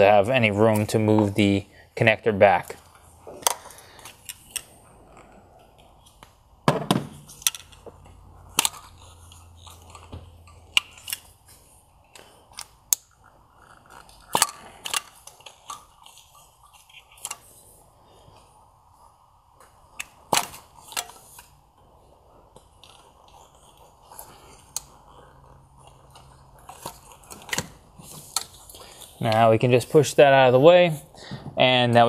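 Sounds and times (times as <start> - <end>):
plastic connectors clicking: 13.9 - 16.3.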